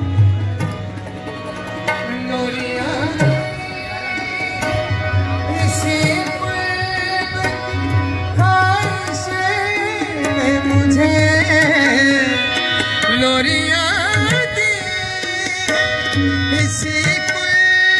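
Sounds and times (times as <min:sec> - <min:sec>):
harmonium: 0:00.0 - 0:17.9
tabla drumming: 0:00.0 - 0:17.9.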